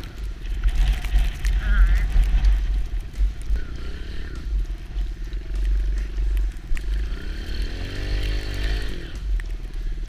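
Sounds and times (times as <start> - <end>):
dirt bike engine revving: 3.6 - 4.6, 7.0 - 9.2.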